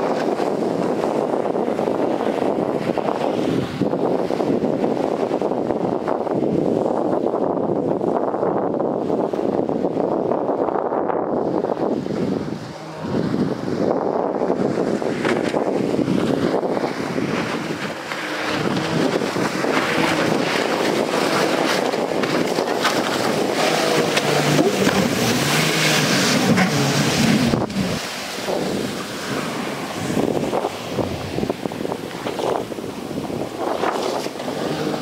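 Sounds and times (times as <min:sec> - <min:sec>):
speedboat motor running: 0:00.0 - 0:35.0
wind on microphone: 0:00.0 - 0:35.0.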